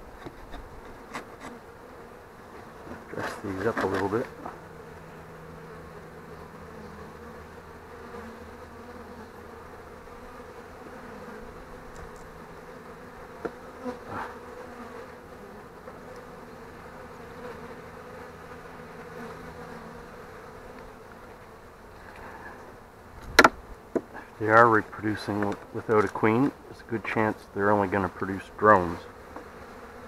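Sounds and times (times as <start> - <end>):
bees buzzing: 0.0 - 30.0
hive tool knocking on wooden frames: 13.4 - 13.7, 23.2 - 24.2, 25.3 - 26.1.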